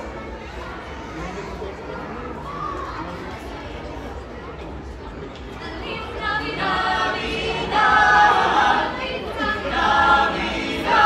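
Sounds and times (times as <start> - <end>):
carolers singing a cappella: 5.6 - 11.0.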